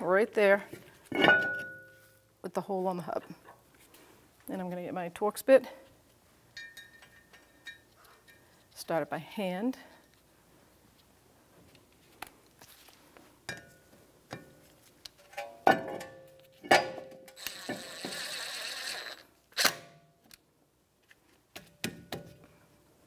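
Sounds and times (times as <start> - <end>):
ratchet ratcheting: 17.4 - 19.7.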